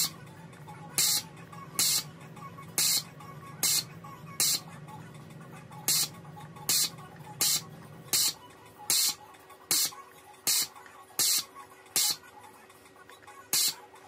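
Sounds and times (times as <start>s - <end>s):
desoldering pump hissing bursts: 1.8s - 2.0s, 2.8s - 3.0s, 3.6s - 3.8s, 4.4s - 4.6s, 5.9s - 6.1s, 6.7s - 9.9s, 10.5s - 11.4s, 13.5s - 13.8s.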